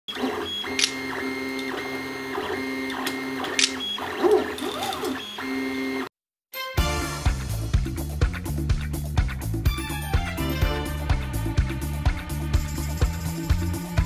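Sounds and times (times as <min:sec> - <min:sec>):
stepper motors whining: 0:00.1 - 0:06.1.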